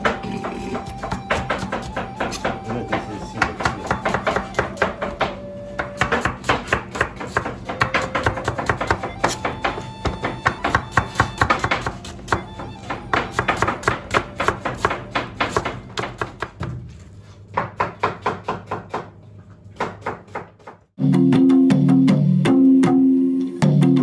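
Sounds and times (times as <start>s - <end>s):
background music: 0.0s - 15.8s, 21.0s - 24.0s
knife chopping on plastic board: 0.0s - 16.8s, 17.6s - 19.2s.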